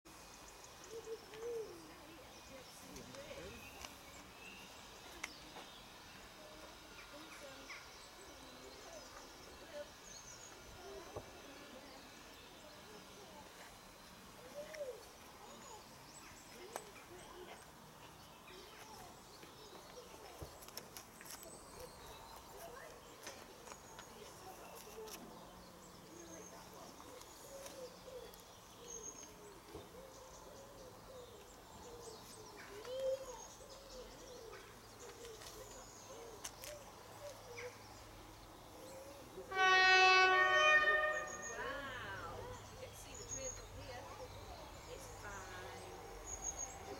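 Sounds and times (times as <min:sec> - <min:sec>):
birds calling and chirping: 0:00.1 - 0:46.9
distant diesel train drone: 0:38.0 - 0:46.9.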